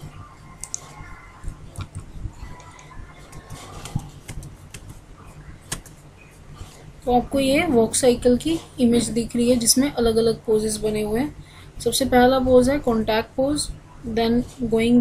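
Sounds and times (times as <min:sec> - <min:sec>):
low steady hum: 0:00.0 - 0:15.0
computer mouse clicking: 0:00.6 - 0:00.9, 0:01.8 - 0:05.0, 0:05.7 - 0:06.0.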